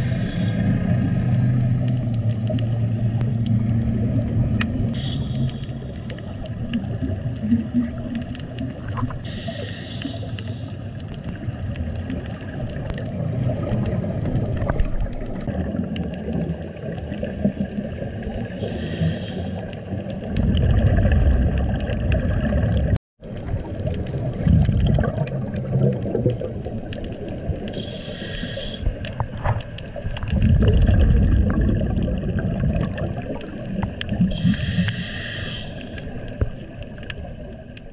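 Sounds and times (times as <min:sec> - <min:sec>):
bubbling exhaled air: 0:00.0 - 0:03.4, 0:04.9 - 0:37.9
regulator hissing: 0:27.8 - 0:28.9, 0:34.3 - 0:36.0.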